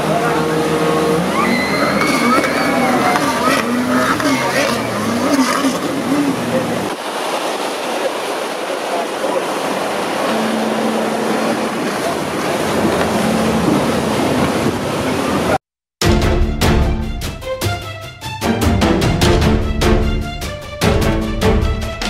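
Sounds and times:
jet ski engine drone: 0:00.0 - 0:15.6
water rushing around a boat: 0:00.0 - 0:15.6
wind: 0:00.0 - 0:15.6
music: 0:16.0 - 0:22.0.

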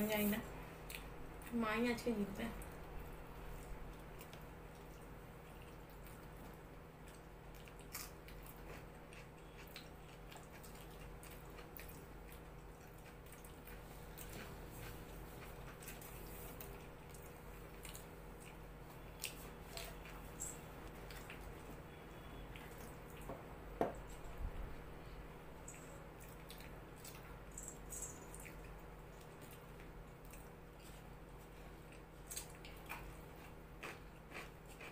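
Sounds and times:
faint steady hum: 0:00.0 - 0:34.9
soft wet chewing: 0:00.8 - 0:01.5, 0:02.6 - 0:24.4, 0:25.6 - 0:34.9.

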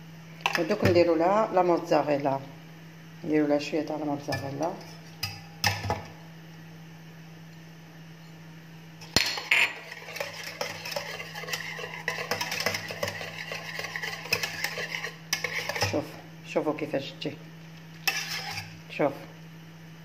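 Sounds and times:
whisk clicking and scraping pot: 0:09.4 - 0:16.2, 0:18.0 - 0:18.8.

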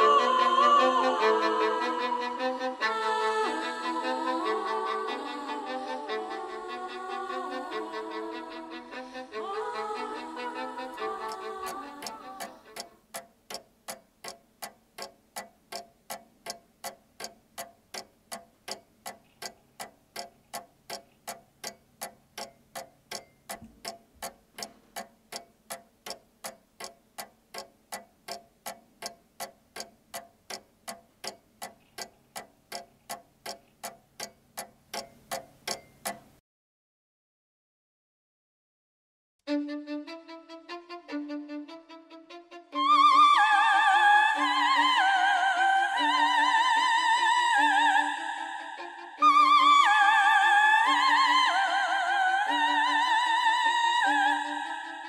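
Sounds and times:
clock ticking: 0:09.5 - 0:36.4.

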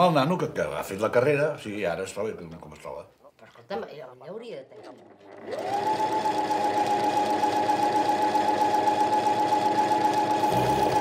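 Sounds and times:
sewing machine stitching: 0:04.6 - 0:11.0.

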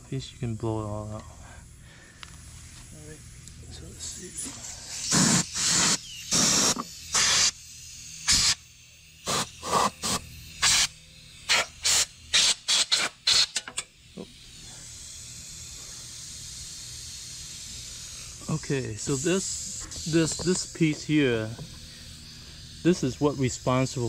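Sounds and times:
compressed air blasts: 0:04.4 - 0:24.0.

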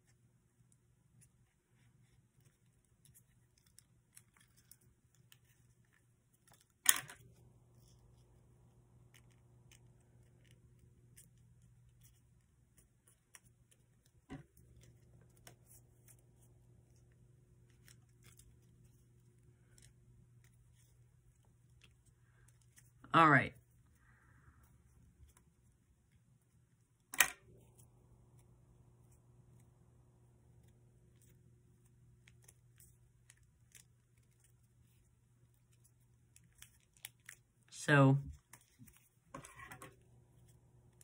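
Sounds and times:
low steady hum: 0:00.0 - 0:41.0
paper rustling: 0:38.3 - 0:41.0.

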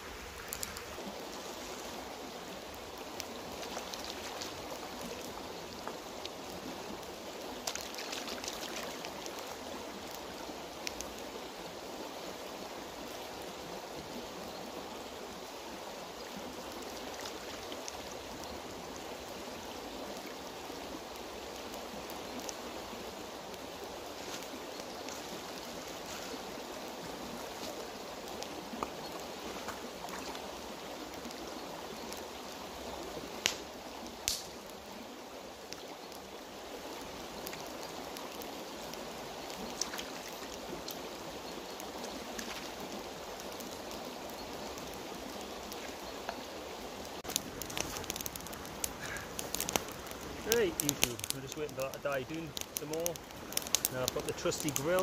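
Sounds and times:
water splashes: 0:00.0 - 0:11.2, 0:15.7 - 0:18.9, 0:37.0 - 0:44.0, 0:44.7 - 0:55.0
river flowing over stones: 0:00.0 - 0:55.0.

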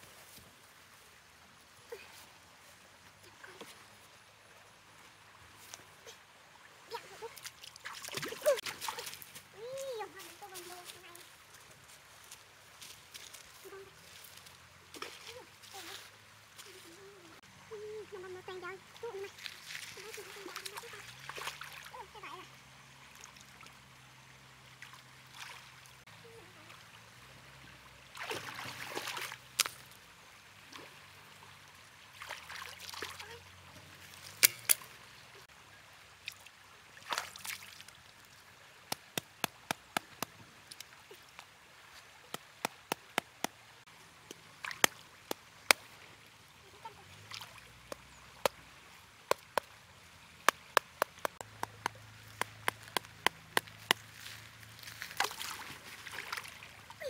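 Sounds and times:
water splashing and sloshing: 0:00.0 - 0:57.0
sharp wooden clicks and knocks: 0:50.4 - 0:54.1.

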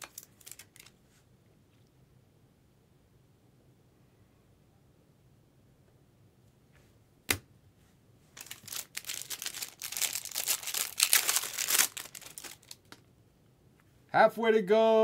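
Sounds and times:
packaging tearing and crinkling: 0:00.0 - 0:00.9, 0:08.4 - 0:13.1.

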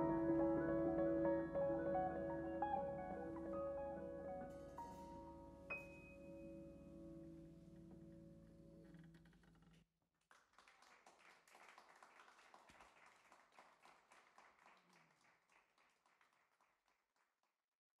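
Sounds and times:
audience applauding: 0:10.3 - 0:16.7.

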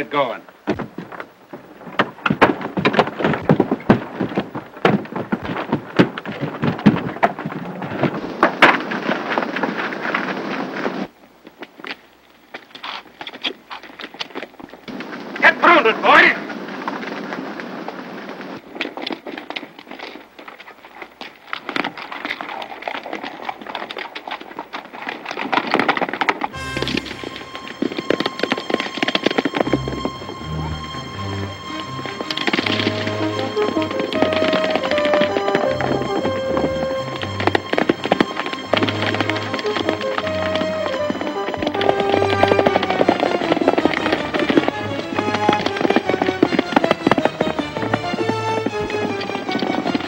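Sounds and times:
hooves clopping on dirt: 0:00.0 - 0:50.0
thuds and bangs on wooden walls: 0:00.7 - 0:01.2.

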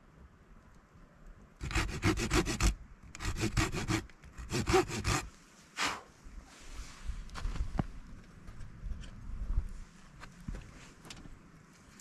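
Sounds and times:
hand saw cutting wood: 0:01.6 - 0:05.3.

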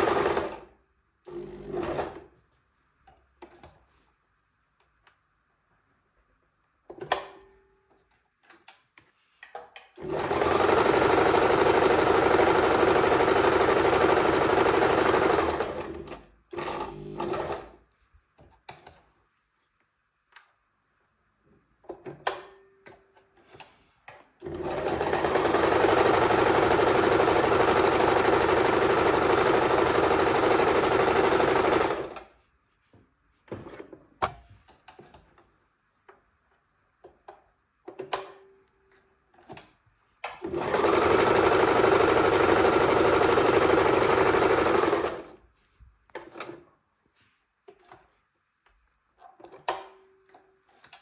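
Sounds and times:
sewing machine stitching: 0:00.0 - 0:02.3, 0:10.0 - 0:17.8, 0:24.4 - 0:32.3, 0:40.3 - 0:45.4.

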